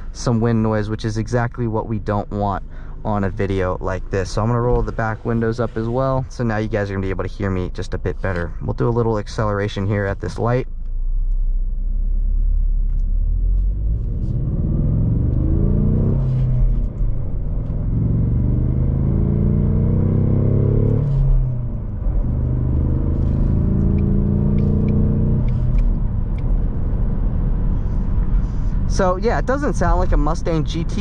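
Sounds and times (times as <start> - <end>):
car engine accelerating hard: 11.1 - 31.0.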